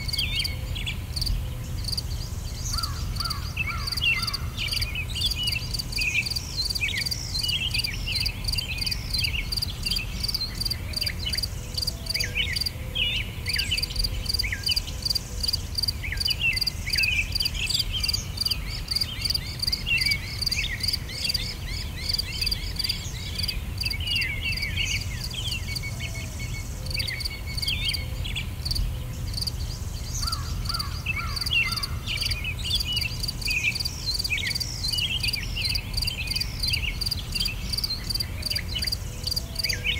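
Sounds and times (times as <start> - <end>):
insect trilling: 30.2 - 39.4.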